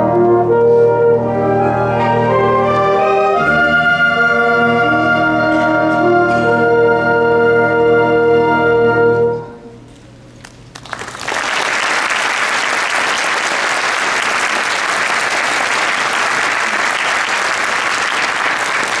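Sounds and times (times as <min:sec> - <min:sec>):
audience applause: 0:10.6 - 0:19.0.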